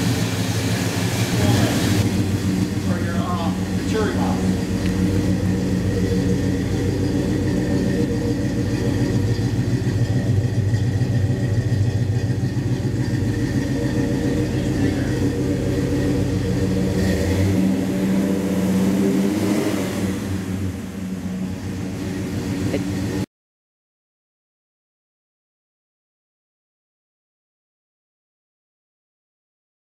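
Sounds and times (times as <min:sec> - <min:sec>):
car engine idling with deep rumble: 0:00.0 - 0:23.3.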